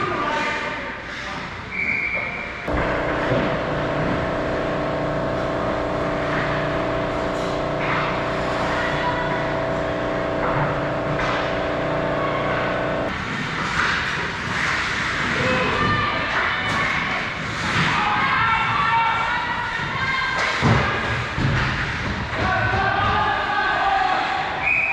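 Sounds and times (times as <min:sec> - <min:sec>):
skates scraping on ice: 0:13.1 - 0:15.8.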